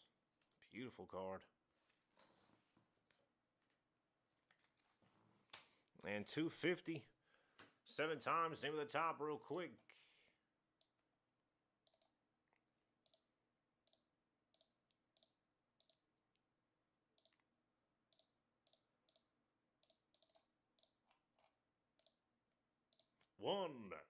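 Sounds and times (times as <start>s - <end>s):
computer mouse clicking: 11.8s - 12.2s, 13.0s - 16.0s, 17.1s - 17.4s, 18.1s - 22.2s, 22.9s - 23.3s.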